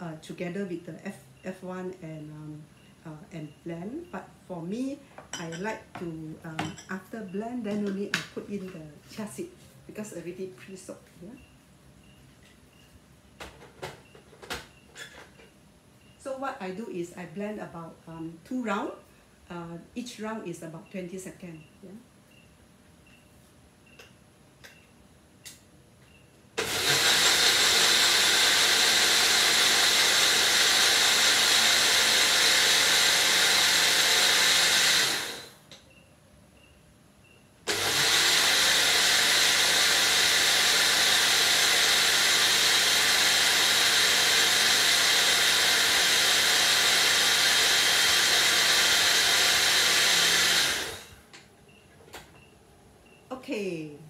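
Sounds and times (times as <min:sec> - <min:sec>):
blender running: 0:26.6 - 0:35.6, 0:37.7 - 0:51.2.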